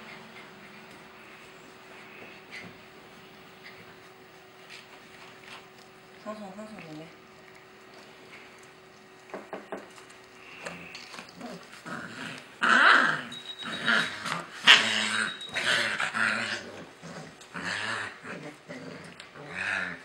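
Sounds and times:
puppy growling: 5.5 - 20.0.

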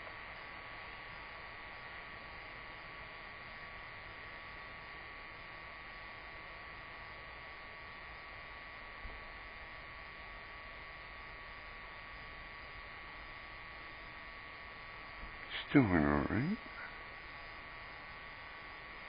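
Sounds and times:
electrical hum and hiss: 0.0 - 19.0
thin steady whine: 0.0 - 19.0.

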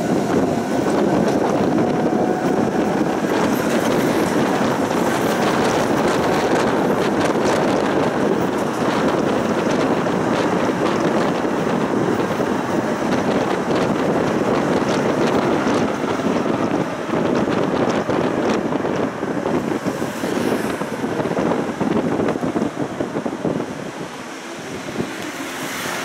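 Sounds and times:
tram rumbling on rails: 0.0 - 26.0
wind buffeting microphone: 0.0 - 26.0.

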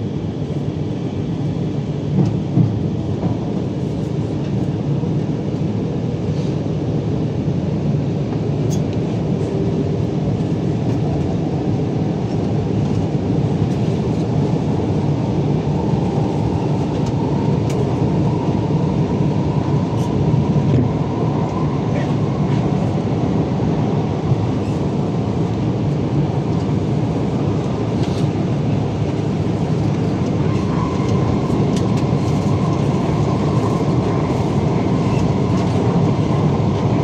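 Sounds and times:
train wheels rumbling on rail: 2.0 - 5.7, 8.3 - 37.0.

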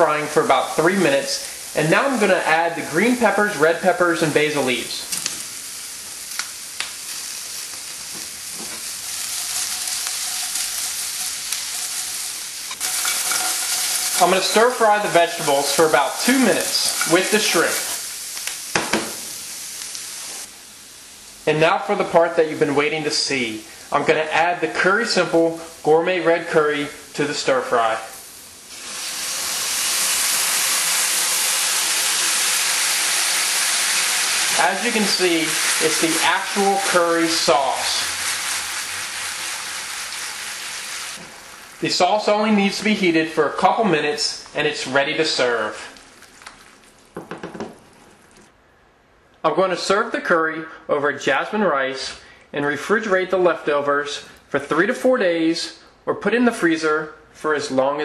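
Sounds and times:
shrimp sizzling in a skillet: 0.3 - 21.9, 28.1 - 42.0.

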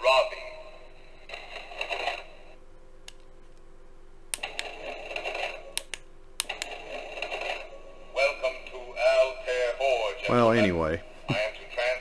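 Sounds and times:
sharp clicks: 4.3 - 4.7, 5.8 - 6.7.

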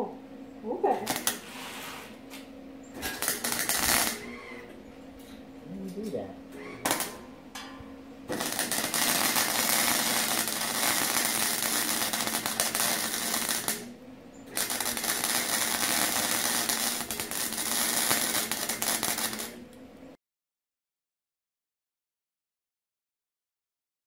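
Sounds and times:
welding arc crackling: 1.0 - 4.8, 6.6 - 7.3, 8.2 - 13.9, 14.5 - 19.8.

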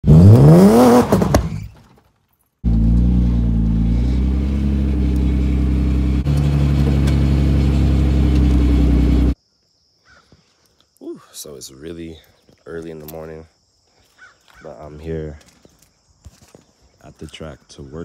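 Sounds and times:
car engine revving: 0.0 - 1.7, 2.6 - 9.4
car engine idling: 2.6 - 9.4.

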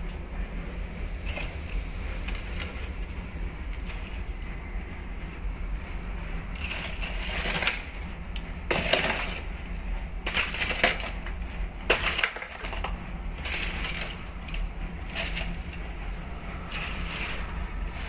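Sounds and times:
steady low hum: 0.0 - 18.0
wooden spatula scraping pan: 6.6 - 7.8, 8.7 - 9.4, 13.4 - 14.3, 15.1 - 15.7, 16.6 - 18.0.

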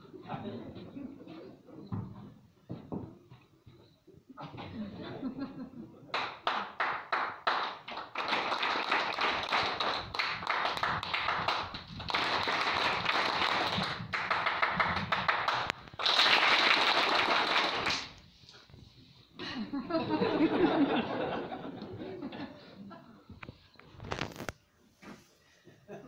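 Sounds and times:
audience applauding: 6.1 - 18.2.

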